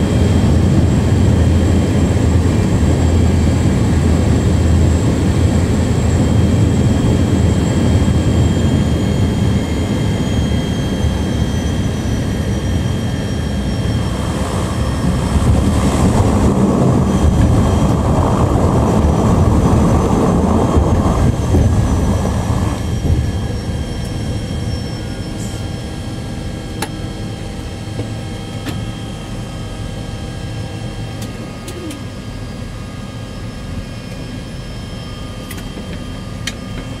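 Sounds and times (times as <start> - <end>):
turbine engine whine: 0.0 - 37.0
loud rushing noise: 14.0 - 25.4.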